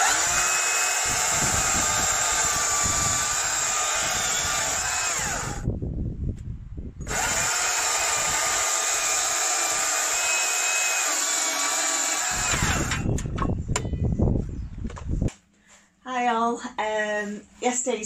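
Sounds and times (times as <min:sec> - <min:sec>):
electric chainsaw cutting log: 0:00.0 - 0:05.7, 0:07.0 - 0:13.4.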